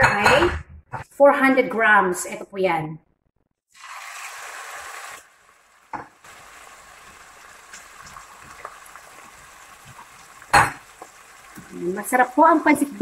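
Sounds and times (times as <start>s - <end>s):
liver sizzling in oil: 3.7s - 13.0s.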